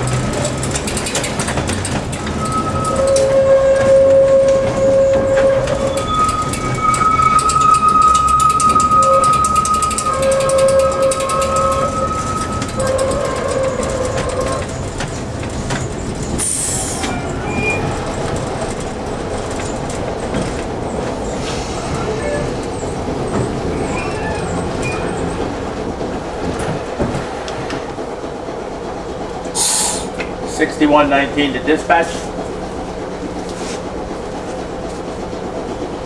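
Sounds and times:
streetcar wheels rumbling: 0.0 - 36.0
wheels squealing on curve: 1.7 - 14.8, 16.3 - 18.2, 21.3 - 25.4.

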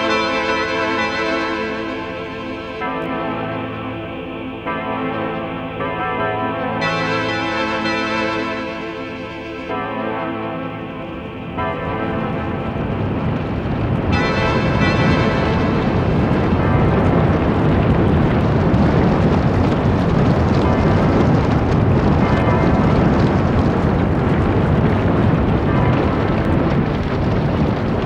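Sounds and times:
roar of rushing tornado wind: 11.0 - 28.0.

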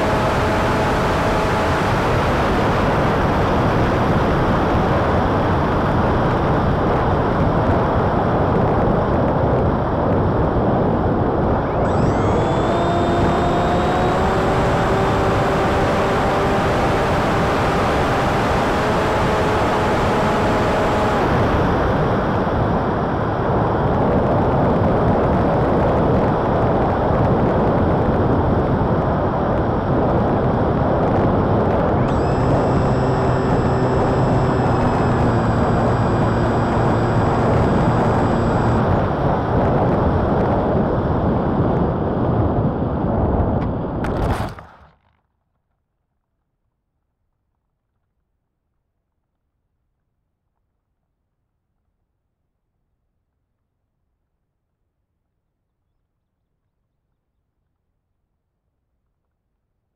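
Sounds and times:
electric motor and propeller whining: 0.0 - 7.3, 10.3 - 24.3, 28.4 - 40.4
wind rushing over microphone: 0.0 - 44.6.

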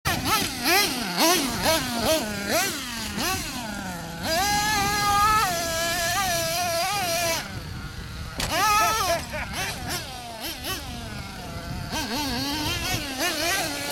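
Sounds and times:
model truck engine revving: 0.1 - 13.9.

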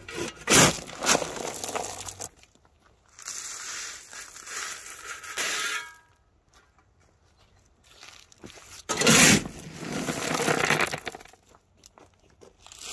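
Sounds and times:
shovel scraping on metal: 0.0 - 2.3, 3.2 - 6.2, 8.8 - 11.2
stones pouring off shovel: 0.2 - 2.4, 8.9 - 11.4.

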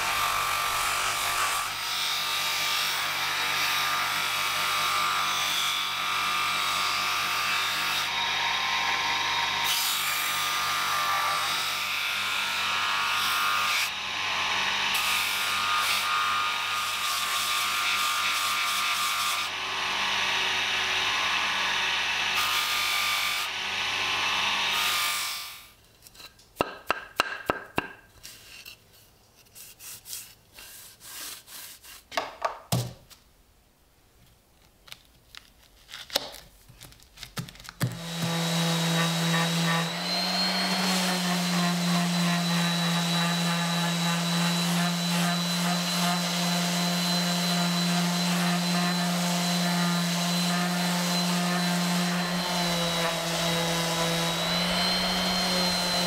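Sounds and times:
orbital sander sanding wood: 37.9 - 56.0.

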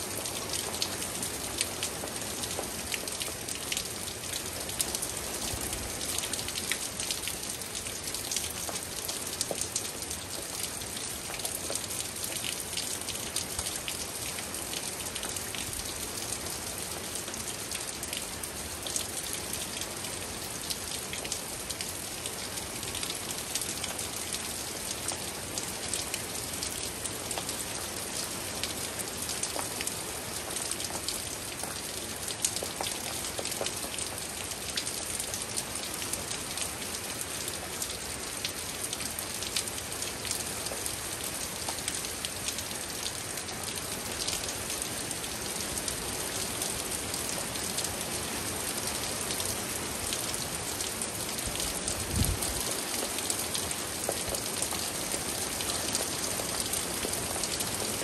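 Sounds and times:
steady rain: 0.0 - 58.0
raindrops ticking: 51.4 - 57.6.

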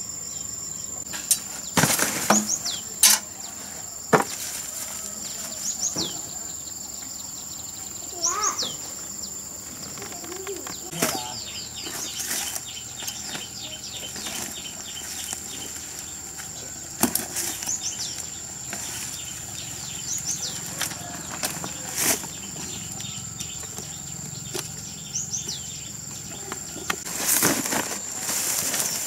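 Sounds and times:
small birds chirping: 0.0 - 29.0
rustling of weeds and plastic sacks: 1.2 - 6.3, 9.5 - 24.7, 26.3 - 29.0.

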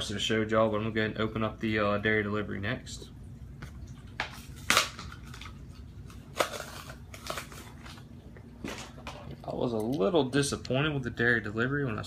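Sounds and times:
plastic packaging snapping: 4.2 - 8.1
packaging rustling: 4.2 - 9.3.

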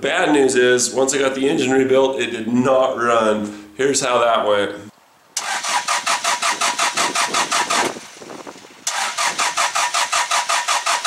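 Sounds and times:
diesel engine cranking: 5.4 - 8.1, 8.8 - 11.0.

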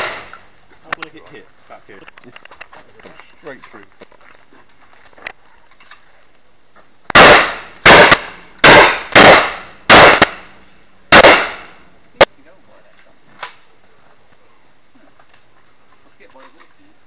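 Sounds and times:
handgun shots echoing: 0.0 - 0.4, 7.1 - 10.5, 11.1 - 11.7.

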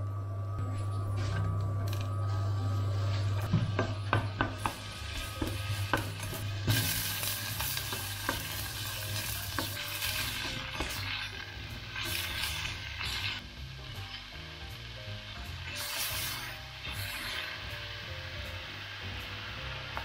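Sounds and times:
low hum: 0.0 - 7.1
onion sizzling in hot oil: 4.1 - 20.0
garlic frying in oil: 4.5 - 20.0.

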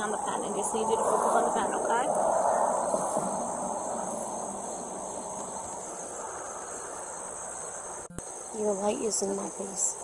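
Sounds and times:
rushing noise: 0.0 - 7.9
insects trilling: 0.0 - 10.0.

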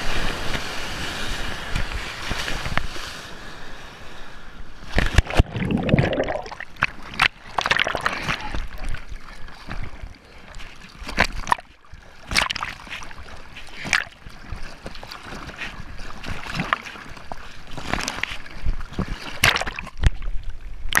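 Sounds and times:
sharp water splashes: 4.9 - 9.0, 11.0 - 20.2
whitewater churning: 5.0 - 20.0.

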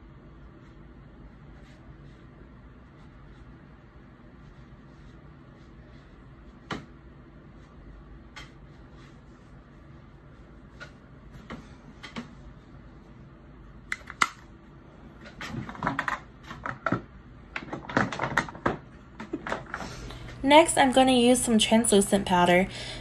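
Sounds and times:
plastic cases clicking and knocking: 15.5 - 19.8.

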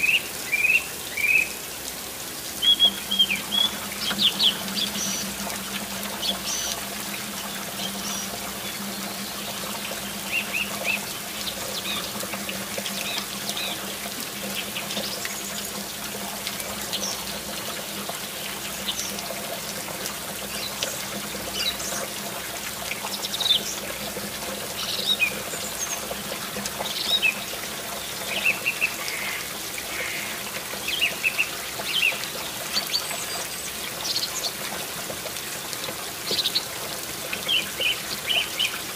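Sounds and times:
water trickling into pool: 0.0 - 38.9
birds chirping: 2.6 - 12.3.

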